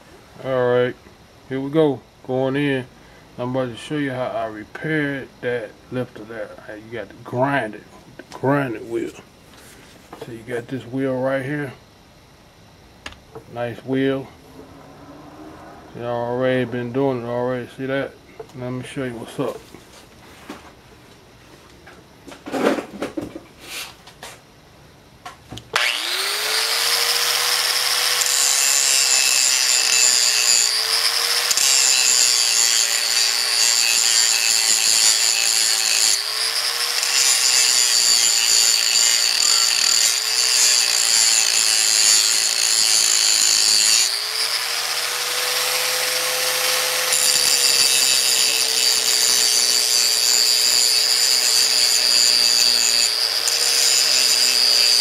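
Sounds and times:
angle grinder grinding metal: 25.8 - 55.0.

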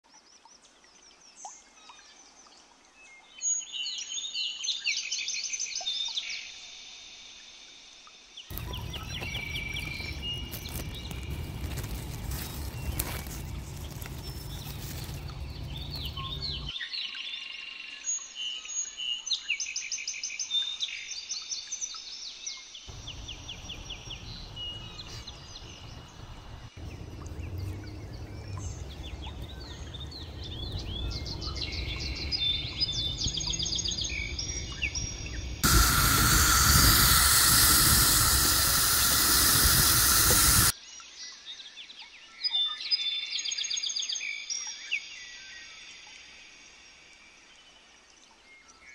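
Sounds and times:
small birds chirping: 8.5 - 16.8, 22.9 - 40.8.

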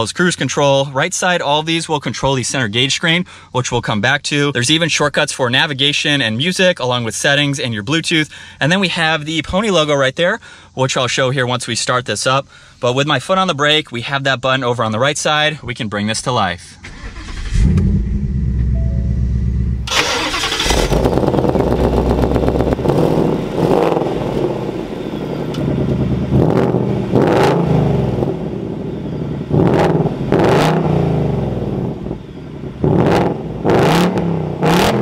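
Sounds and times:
car engine starting: 16.8 - 35.0
car engine revving in blips: 16.9 - 35.0
car engine fast idle: 19.9 - 22.8.

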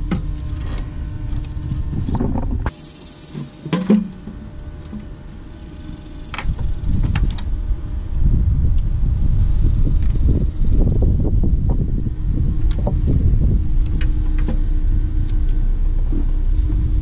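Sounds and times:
low rumble: 0.0 - 2.7, 4.1 - 17.0
faint high buzz: 0.0 - 17.0.

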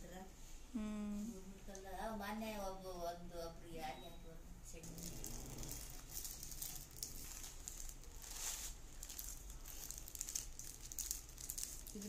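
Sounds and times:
plastic packaging crinkling: 4.8 - 12.0.

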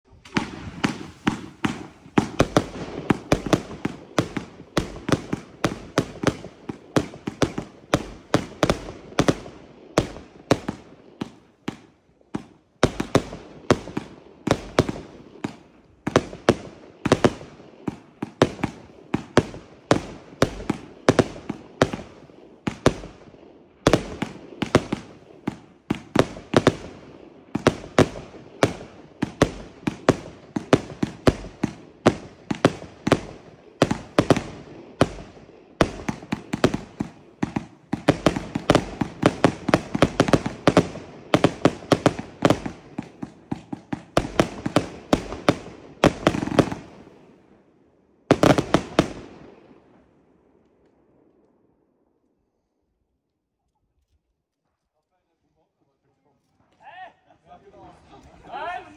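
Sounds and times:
firework cake launch and burst bangs: 0.1 - 23.1.

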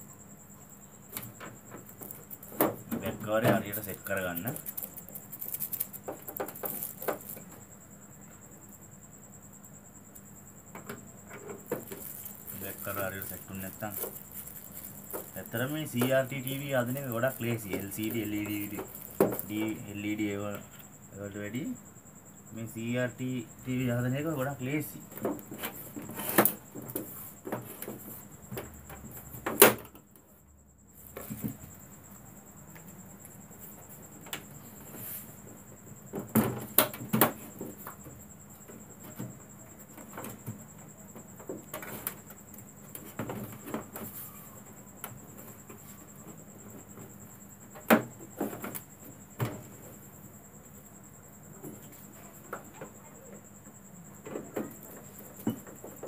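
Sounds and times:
plastic cover being handled: 1.8 - 7.6, 11.4 - 20.0.

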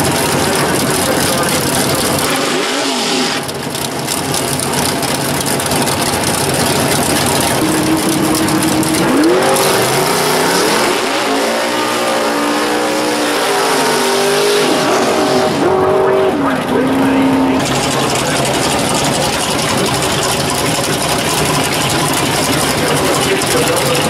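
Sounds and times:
drag car engine revving: 0.0 - 24.0
tires spinning: 0.0 - 24.0.

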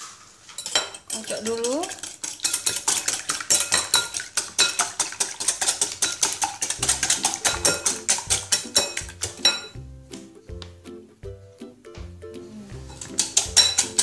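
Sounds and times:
whisk clicking on glass bowl: 0.6 - 9.8, 12.9 - 14.0
background music with bass: 6.8 - 14.0.

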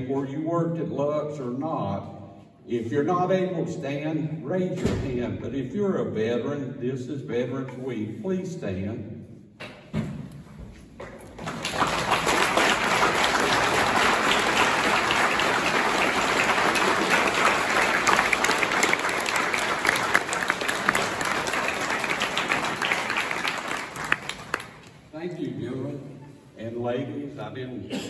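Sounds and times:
audience applauding: 11.2 - 25.1.

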